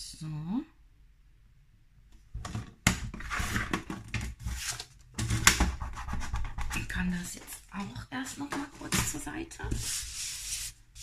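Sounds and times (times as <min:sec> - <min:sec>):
paper rustling: 0:03.1 - 0:11.0.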